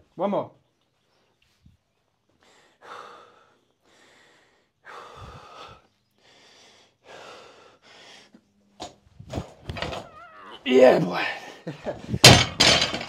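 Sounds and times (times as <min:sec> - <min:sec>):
man breathing hard: 0:02.3 - 0:08.5.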